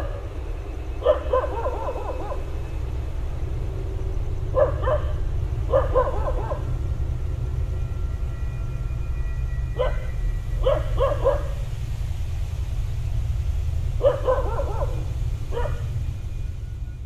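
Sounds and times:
steady low rumble: 0:00.0 - 0:17.0
dogs barking: 0:01.0 - 0:02.5, 0:04.5 - 0:06.8, 0:09.7 - 0:11.8, 0:13.9 - 0:16.0.

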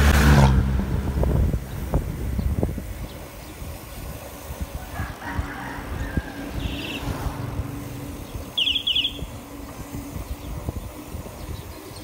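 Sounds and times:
bicycle road rumble: 0:00.0 - 0:12.0
wind buffeting microphone: 0:00.0 - 0:12.0
bird chirping: 0:06.5 - 0:07.1, 0:08.2 - 0:09.4.

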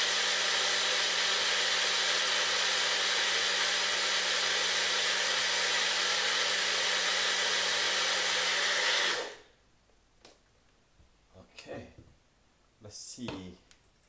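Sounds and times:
blender running: 0:00.0 - 0:09.5.

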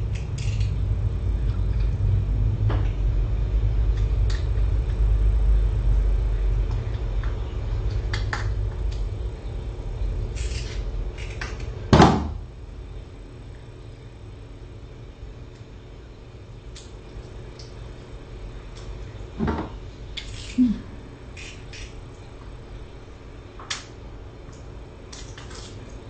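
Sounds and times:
quiet hum: 0:00.0 - 0:26.0
steady low rumble: 0:00.0 - 0:26.0
loud thump: 0:12.0 - 0:12.4, 0:19.4 - 0:19.8.

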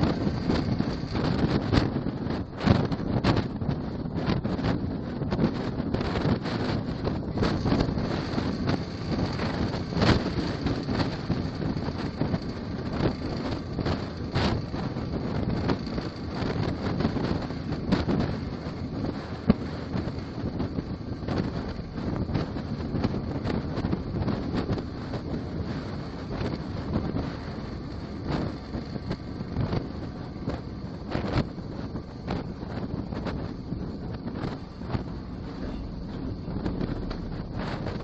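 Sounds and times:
truck and road rumble: 0:00.0 - 0:38.0
wind buffeting a microphone: 0:00.0 - 0:38.0.

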